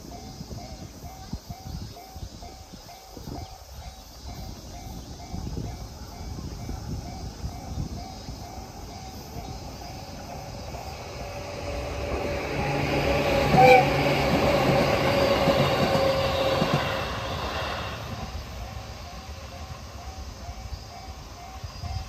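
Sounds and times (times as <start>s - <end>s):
crossing warning bell ringing: 0.0s - 22.0s
train wheels clacking over rail joints: 7.5s - 19.2s.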